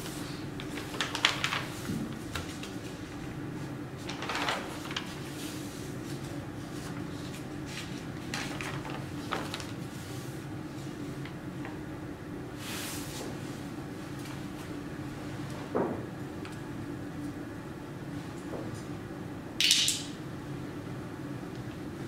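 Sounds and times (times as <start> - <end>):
pages turning: 0.6 - 3.0, 4.0 - 9.8.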